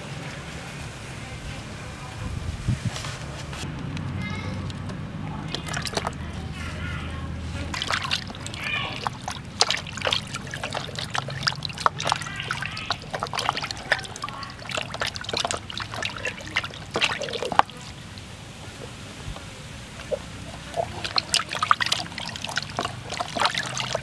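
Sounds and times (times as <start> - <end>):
water splashing in a plastic basin: 5.3 - 24.0.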